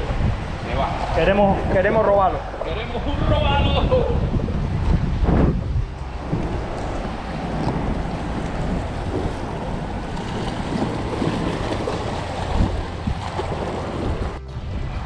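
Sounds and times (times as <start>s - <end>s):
wind buffeting microphone: 0.0s - 15.0s
waves washing against rocks: 4.3s - 14.4s.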